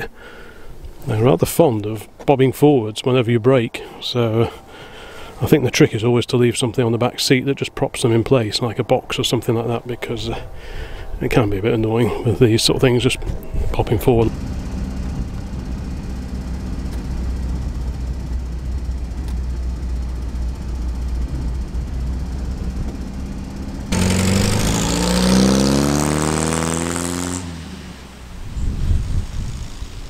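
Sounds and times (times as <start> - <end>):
car engine droning: 11.4 - 30.0.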